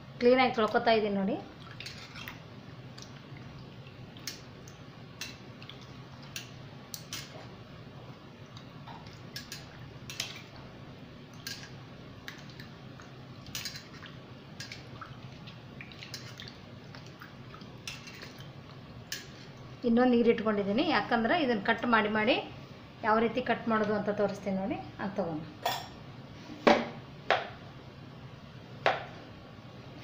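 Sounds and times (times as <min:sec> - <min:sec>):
potatoes washed in bowl of water: 0:00.2 - 0:07.5, 0:08.4 - 0:21.8.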